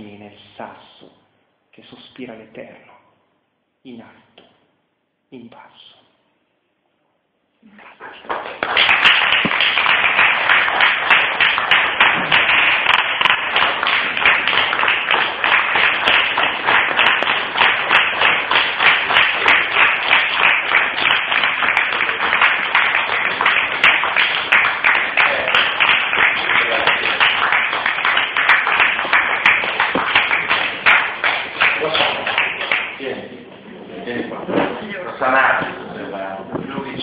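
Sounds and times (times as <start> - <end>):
audience applauding: 7.8 - 33.2.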